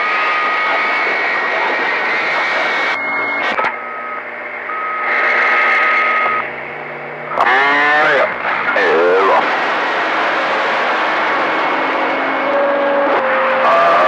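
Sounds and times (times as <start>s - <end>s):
radio static hiss: 0.0s - 14.0s
radio clicks: 1.5s - 4.3s, 5.0s - 6.5s.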